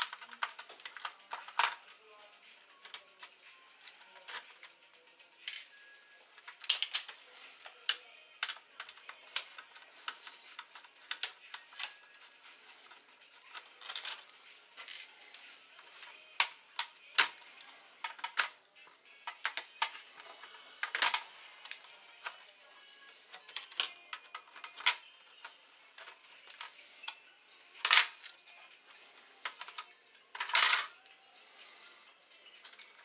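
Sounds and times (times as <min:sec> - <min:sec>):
plastic laptop parts handled: 0:00.0 - 0:01.8, 0:06.4 - 0:18.6.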